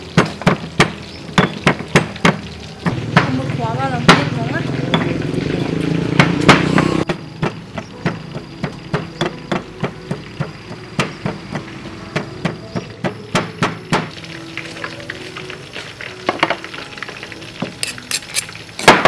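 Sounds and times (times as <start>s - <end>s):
pestle pounding in stone mortar: 0.1s - 2.4s, 6.1s - 14.1s.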